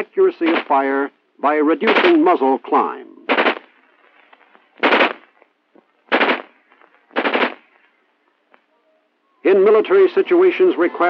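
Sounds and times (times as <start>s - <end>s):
rifle shots: 0.4s - 0.8s, 1.8s - 2.4s, 3.3s - 3.8s, 4.8s - 5.3s, 6.1s - 7.7s.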